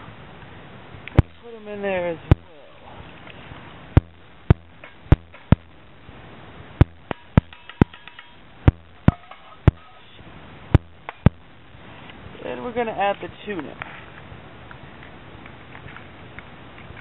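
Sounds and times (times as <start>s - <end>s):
tin can tapping metal pot: 4.0s - 5.7s, 6.8s - 10.0s.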